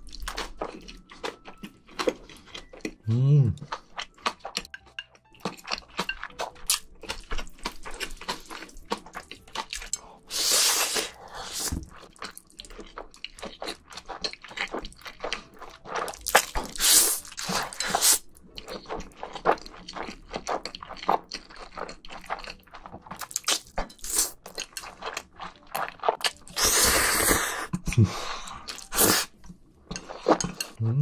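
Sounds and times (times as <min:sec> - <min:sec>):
wet chewing and smacking: 0:00.0 - 0:10.3, 0:10.9 - 0:30.8
slurping noodles: 0:10.3 - 0:11.8, 0:16.6 - 0:18.2, 0:26.5 - 0:27.8, 0:28.7 - 0:29.3.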